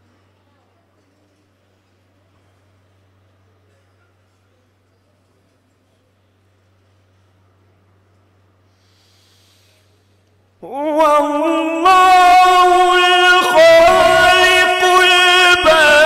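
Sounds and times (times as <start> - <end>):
faint low hum: 0.0 - 16.0
man reciting melodically: 10.6 - 16.0.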